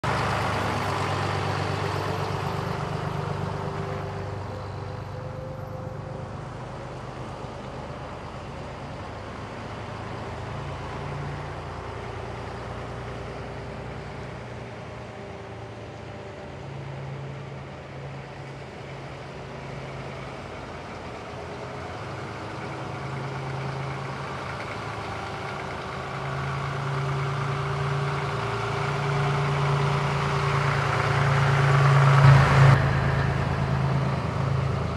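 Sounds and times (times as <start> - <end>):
truck diesel engine running: 0.0 - 34.9.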